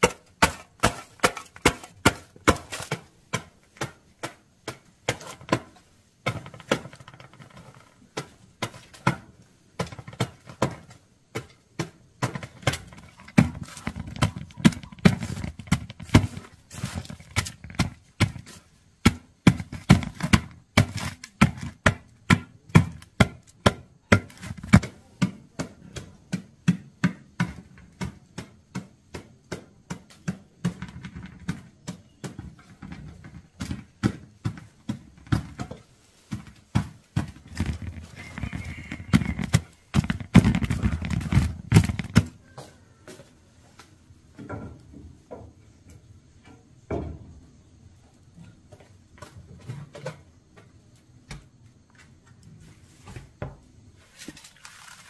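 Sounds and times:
wooden pestle pounding in metal pot: 0:00.0 - 0:05.7, 0:36.3 - 0:42.2.

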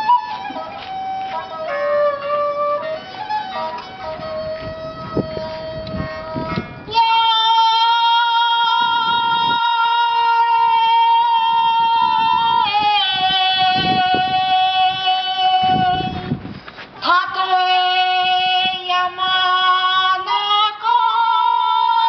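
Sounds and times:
woman singing high notes: 0:06.4 - 0:16.2.

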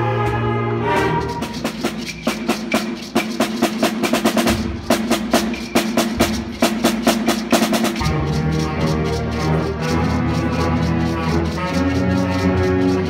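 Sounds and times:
rapid snare drum strokes: 0:00.9 - 0:13.0.

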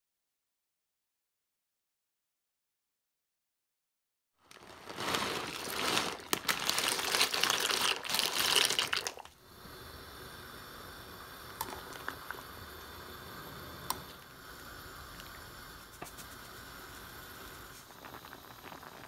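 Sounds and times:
pasta water boiling: 0:04.4 - 0:19.0.

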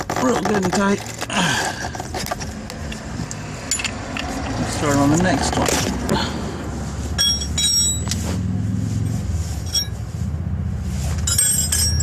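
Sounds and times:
wrench clinking on metal: 0:03.6 - 0:04.6, 0:07.2 - 0:08.2, 0:09.7 - 0:10.0, 0:11.2 - 0:12.0.

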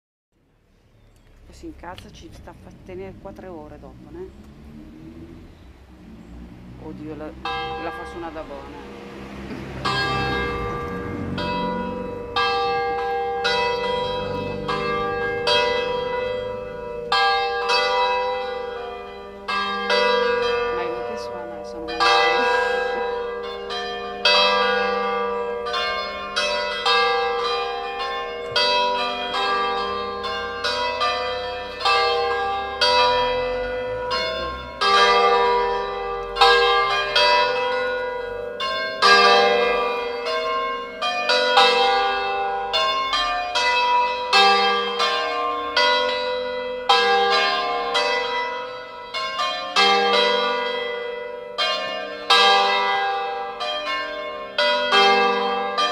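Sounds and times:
church bells pealing: 0:06.7 - 0:55.9.

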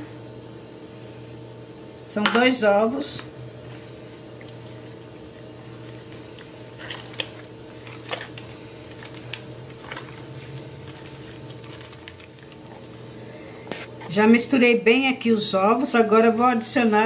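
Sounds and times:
steady low hum: 0:00.0 - 0:17.0
wet squelches and slaps: 0:03.7 - 0:12.9
hand kneading sticky dough: 0:03.7 - 0:13.0.

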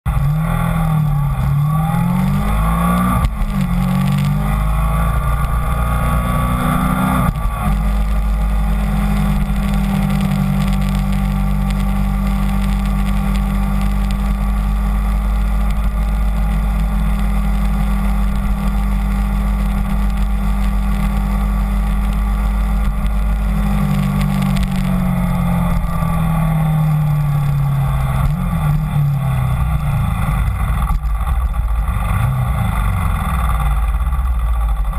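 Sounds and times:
motorcycle engine revving: 0:00.1 - 0:34.9.

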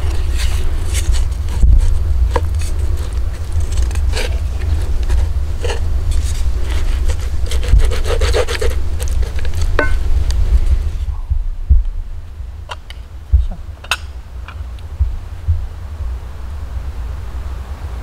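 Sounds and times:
low rumble: 0:08.8 - 0:18.0.

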